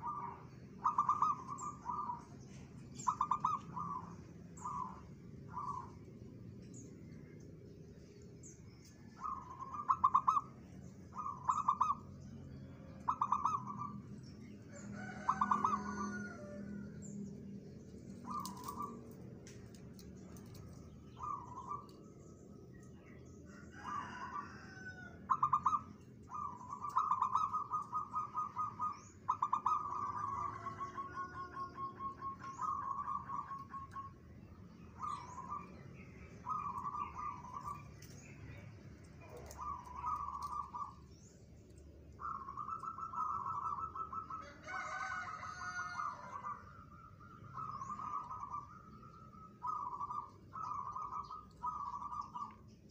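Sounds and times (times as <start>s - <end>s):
dove cooing: 0.0s - 2.4s, 3.0s - 6.0s, 9.1s - 12.1s, 13.0s - 14.0s, 14.8s - 16.8s, 18.2s - 19.1s, 23.8s - 34.1s, 36.4s - 38.2s, 39.2s - 41.0s, 42.2s - 52.6s.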